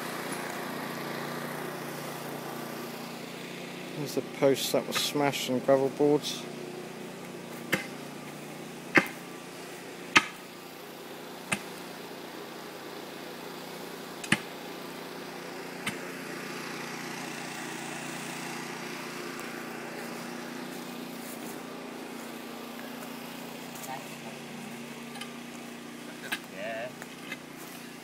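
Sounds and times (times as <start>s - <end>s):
low mechanical hum: 0.0s - 28.0s
sharp knocks: 7.7s - 7.9s, 10.1s - 10.4s.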